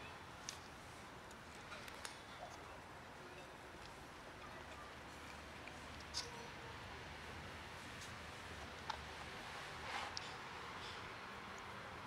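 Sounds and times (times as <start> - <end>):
low steady hiss: 0.0 - 12.0.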